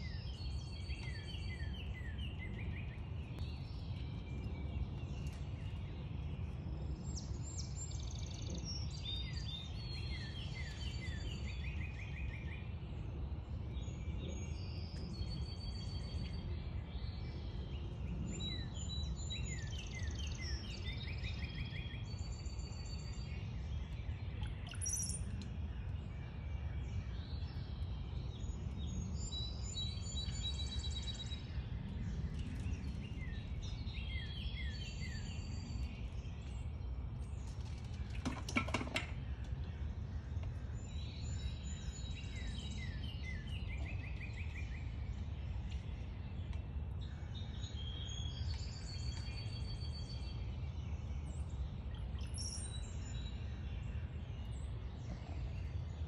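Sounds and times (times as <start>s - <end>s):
songbirds singing and chirping: 0.0s - 56.0s.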